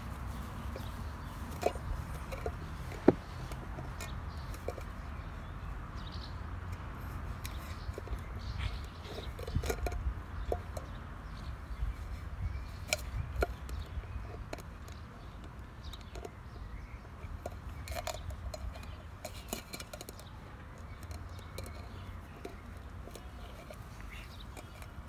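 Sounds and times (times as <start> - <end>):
puppy teeth scraping tin can: 0.4 - 5.1, 7.1 - 11.0, 17.0 - 25.0.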